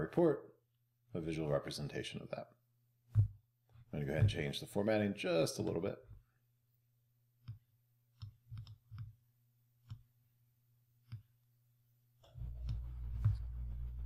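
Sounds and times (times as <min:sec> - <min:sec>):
computer mouse clicks: 0:08.2 - 0:09.1
low steady hum: 0:09.1 - 0:14.0.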